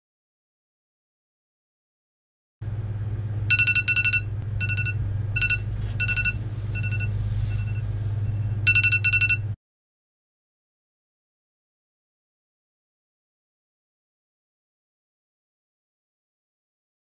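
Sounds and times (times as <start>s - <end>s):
low hum: 2.6s - 9.6s
phone alarm beeps: 3.5s - 9.6s.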